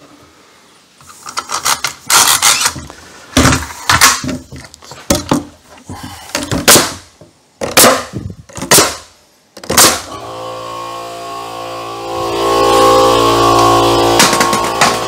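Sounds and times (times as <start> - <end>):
nail gun firing: 6.6 - 7.0, 7.6 - 10.2
background music: 12.0 - 15.0.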